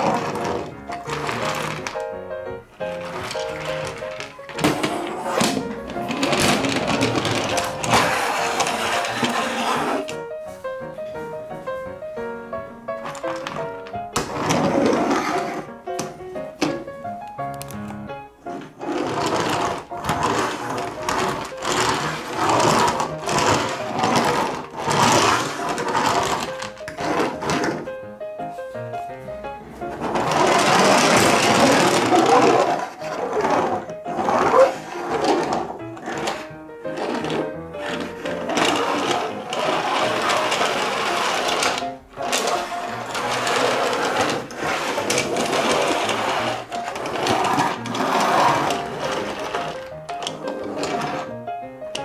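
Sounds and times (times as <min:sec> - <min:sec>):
toy bulldozer whirring rattle: 0:06.0 - 0:10.0, 0:18.9 - 0:27.4, 0:30.2 - 0:36.4, 0:37.0 - 0:51.3.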